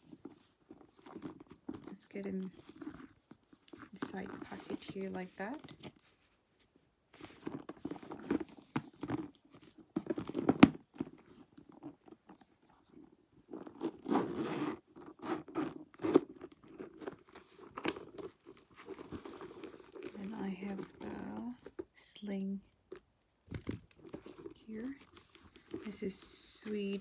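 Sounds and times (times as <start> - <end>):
leather bag rustling and creaking: 0.0 - 27.0
zip being pulled open: 13.7 - 16.9.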